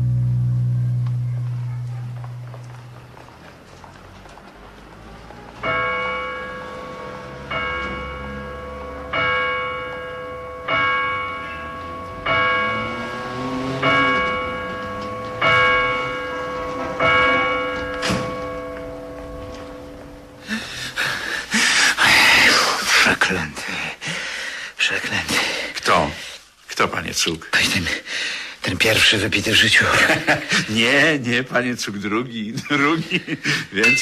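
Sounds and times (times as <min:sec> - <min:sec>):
bell ringing: 0:05.6 - 0:20.5, 0:33.8 - 0:34.0.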